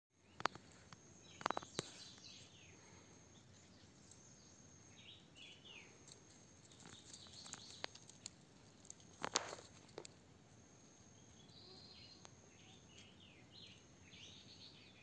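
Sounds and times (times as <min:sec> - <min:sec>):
faint outdoor ambience: 0:00.1 - 0:15.0
sharp clicks and crackles: 0:06.0 - 0:10.2.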